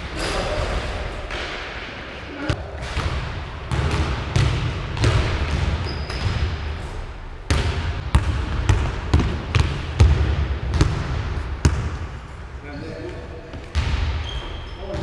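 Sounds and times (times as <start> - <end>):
basketball bouncing on wooden floor: 3.0 - 6.5, 7.5 - 12.0.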